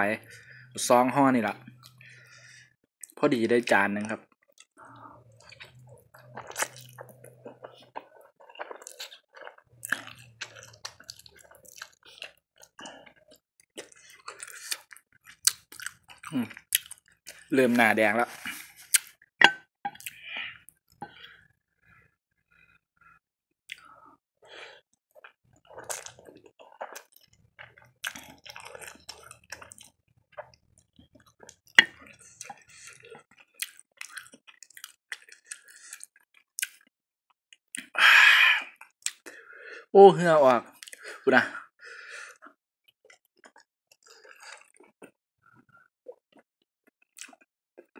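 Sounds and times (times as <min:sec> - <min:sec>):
wet chewing: 0:04.6 - 0:17.8, 0:18.4 - 0:21.4, 0:24.6 - 0:36.9, 0:42.3 - 0:45.7.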